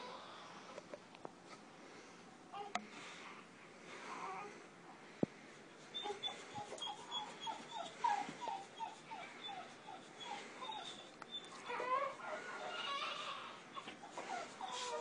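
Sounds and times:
dog whimpering: 6.0s - 15.0s.

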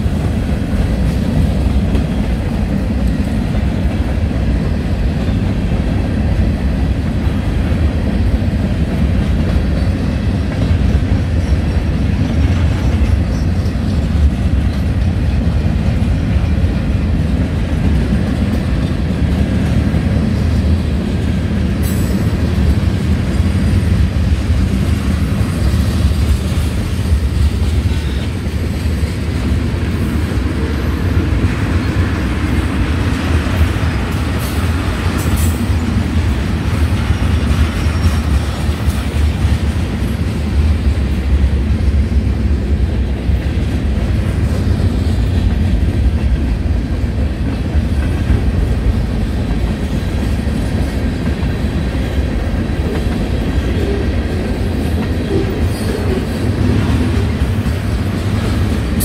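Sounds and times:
high-pitched rail noise: 0.0s - 59.0s
train wheels rumbling on rails: 0.0s - 59.0s.

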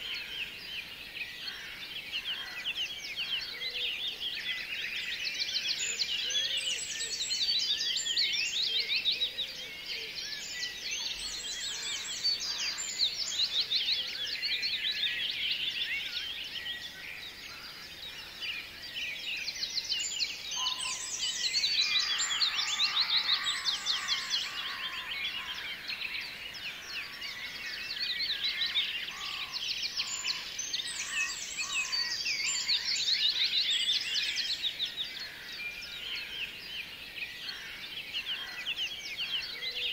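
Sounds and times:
small birds chirping and twittering: 0.0s - 39.9s.

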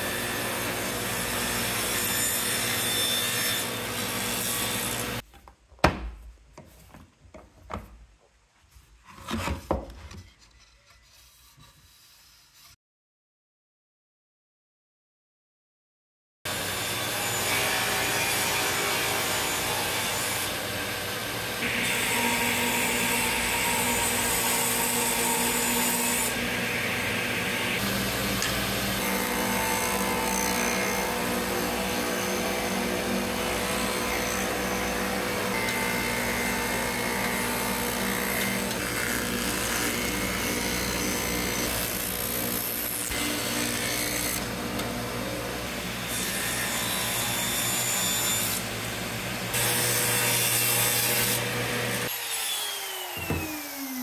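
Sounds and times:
power tool cutting wood: 0.0s - 5.2s, 16.5s - 54.0s.

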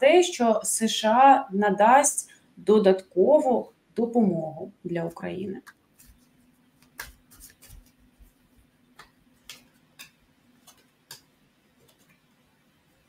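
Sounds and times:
cards being shuffled: 5.6s - 12.4s.

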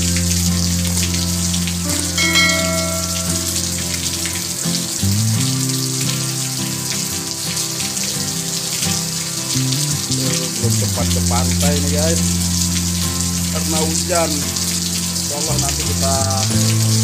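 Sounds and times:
heavy rain on leaves and road: 0.0s - 17.0s
music of held low chords: 0.0s - 17.0s
brief higher music notes: 1.8s - 4.3s.

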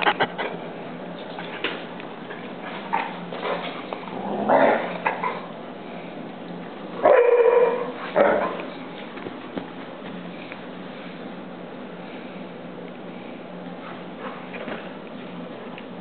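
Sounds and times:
dogs growling and yipping: 0.0s - 0.6s, 2.8s - 5.6s, 7.0s - 8.7s.

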